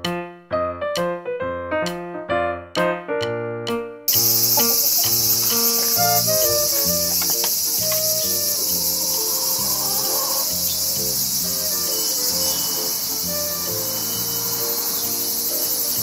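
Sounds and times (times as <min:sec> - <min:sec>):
soft background music: 0:03.6 - 0:16.0
high-pitched insect chorus: 0:04.1 - 0:16.0.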